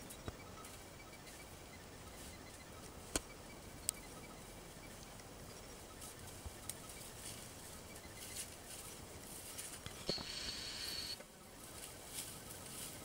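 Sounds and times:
faint steady hiss: 0:00.0 - 0:13.0
sharp clicks: 0:09.8 - 0:11.3.

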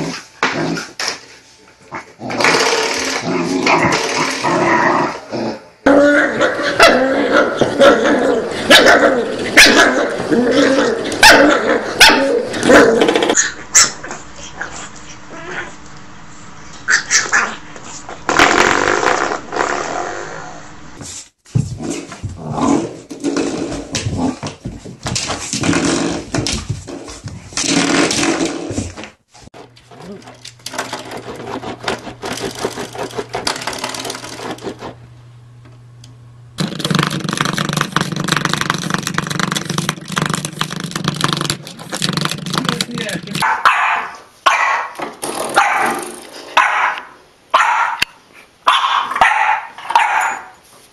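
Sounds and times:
puppy growling and yapping: 0:01.9 - 0:15.8, 0:16.7 - 0:18.0.

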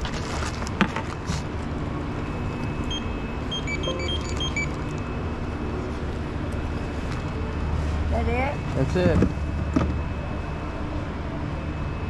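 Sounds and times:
store background hum: 0:00.0 - 0:12.0
short electronic beeps: 0:02.4 - 0:05.2.

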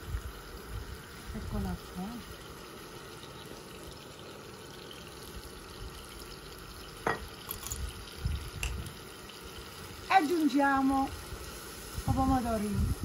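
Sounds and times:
pot cooking hiss: 0:00.0 - 0:13.0.

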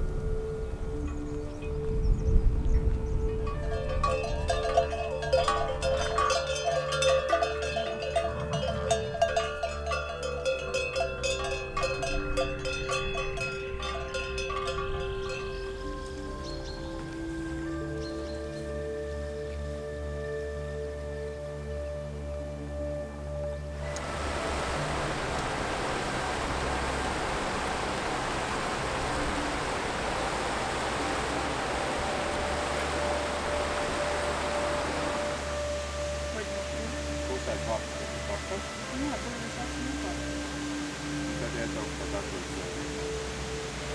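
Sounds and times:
plucked bell-like melody: 0:01.0 - 0:18.9
river rushing over rocks: 0:23.8 - 0:43.9.

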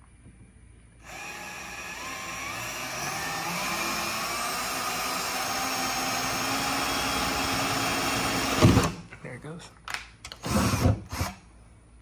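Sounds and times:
small electric motor whining: 0:01.0 - 0:08.6.

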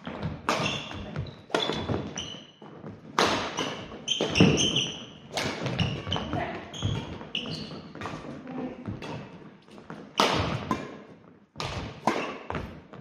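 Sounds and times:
shoe squeaks: 0:00.0 - 0:02.7, 0:03.5 - 0:08.2
rackets hitting shuttlecock: 0:00.0 - 0:13.0.

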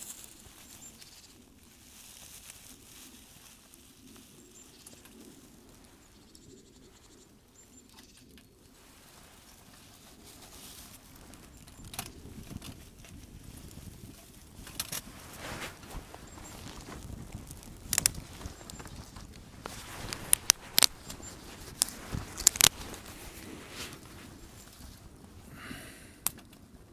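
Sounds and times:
campfire crackling: 0:00.0 - 0:26.9
twigs rustling: 0:00.0 - 0:26.9.

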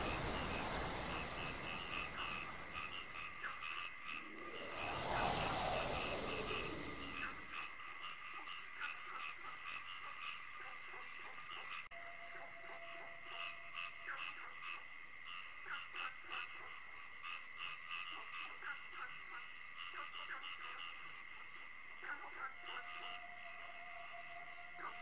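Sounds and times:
faint steady tone: 0:00.0 - 0:03.3, 0:04.2 - 0:07.6.

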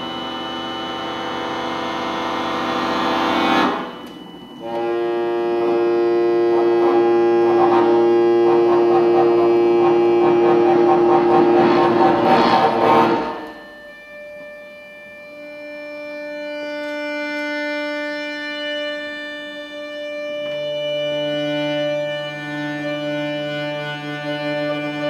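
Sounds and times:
accordion chords: 0:00.0 - 0:14.0.

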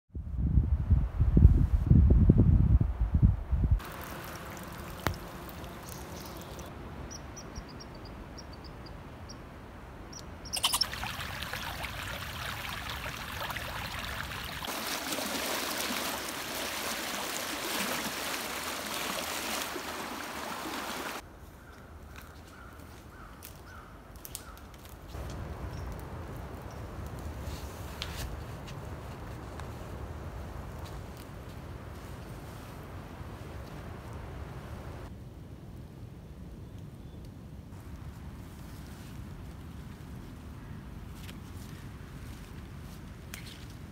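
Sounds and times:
bird chirping: 0:05.8 - 0:09.4, 0:10.1 - 0:11.0
whitewater rushing: 0:10.9 - 0:21.2.

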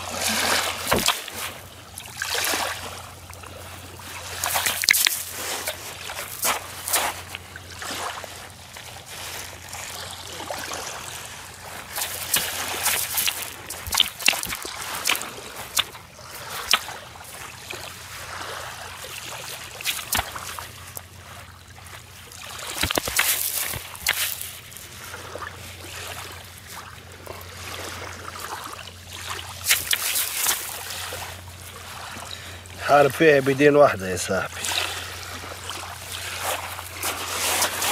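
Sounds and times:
water trickling over shingle: 0:00.0 - 0:37.9
pebbles clicking and crunching: 0:22.7 - 0:24.6.

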